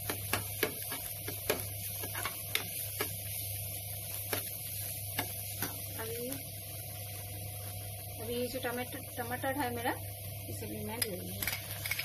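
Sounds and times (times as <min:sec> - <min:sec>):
spoon scraping a pan: 0:00.0 - 0:03.1
food frying hiss: 0:00.0 - 0:12.0.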